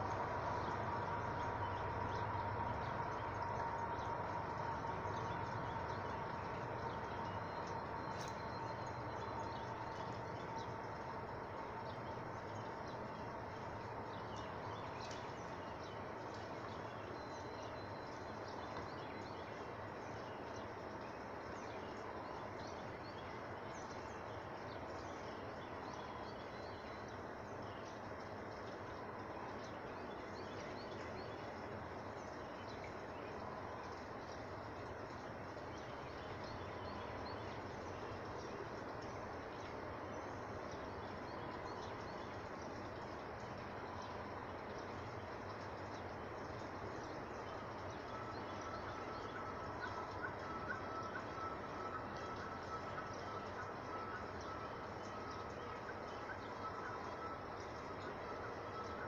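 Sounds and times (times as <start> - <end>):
steady low background hum: 0.0 - 59.0.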